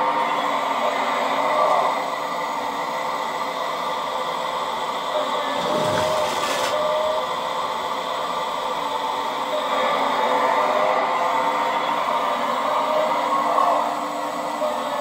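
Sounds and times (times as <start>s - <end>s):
toy excavator hydraulics whining: 5.1s - 7.8s
hiss of bucket digging soil: 5.6s - 6.9s.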